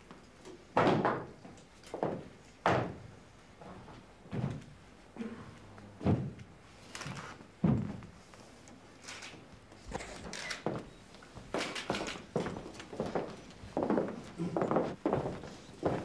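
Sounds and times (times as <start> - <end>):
faint footsteps: 1.4 - 16.0
boots stamping on hard floor: 6.0 - 6.5, 7.6 - 8.1, 11.5 - 16.0.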